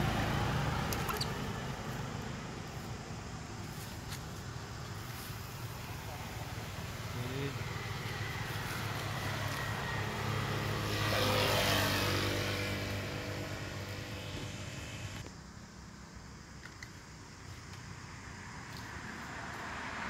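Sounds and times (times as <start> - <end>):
motorbike passing: 0.0 - 3.8, 4.4 - 15.2.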